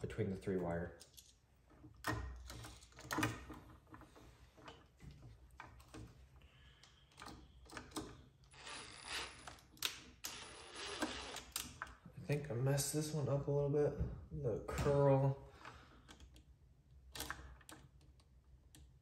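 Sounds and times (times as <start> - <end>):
switch and tool clicks and rattles: 0.6 - 8.5.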